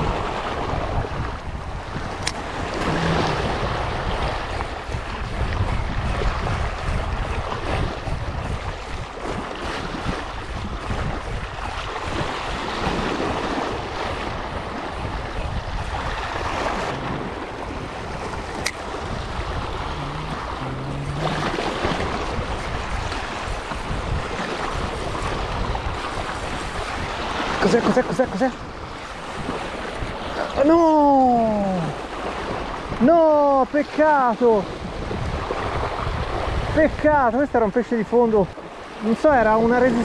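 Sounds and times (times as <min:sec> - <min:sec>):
sea washing against rocks: 0:00.0 - 0:40.0
wind buffeting microphone: 0:00.0 - 0:40.0.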